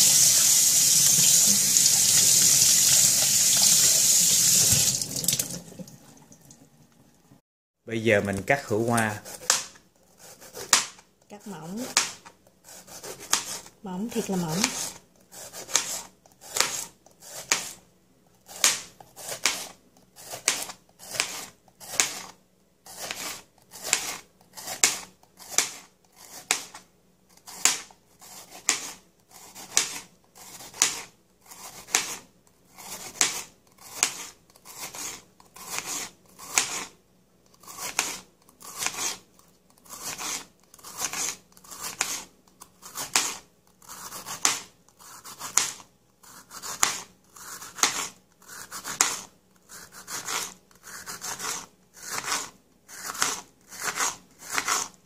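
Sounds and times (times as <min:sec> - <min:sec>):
knife slicing on cutting board: 0:08.9 - 0:11.0, 0:11.7 - 0:17.8, 0:18.4 - 0:26.8, 0:27.4 - 0:32.2, 0:32.8 - 0:37.0, 0:37.6 - 0:55.0.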